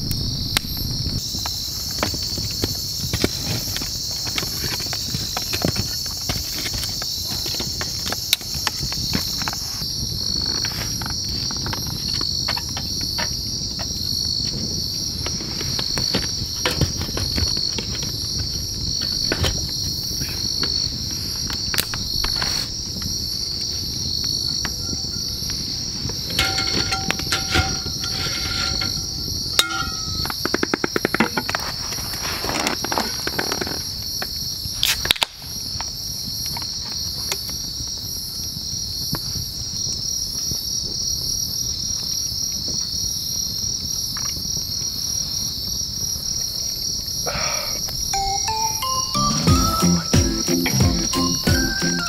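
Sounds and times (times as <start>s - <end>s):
campfire popping and crackling: 0.0s - 32.1s
insects chirping: 0.0s - 52.0s.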